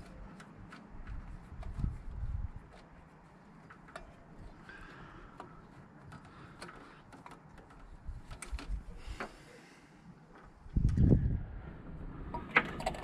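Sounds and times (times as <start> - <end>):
hands clicking carburettor linkage: 5.3 - 8.8.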